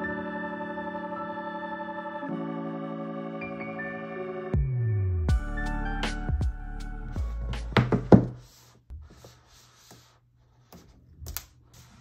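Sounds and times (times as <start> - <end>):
box knocking on table: 7.7 - 8.4.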